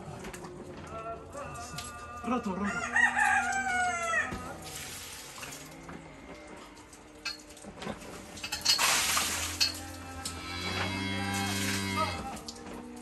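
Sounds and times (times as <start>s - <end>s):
rooster crowing: 1.0s - 4.6s.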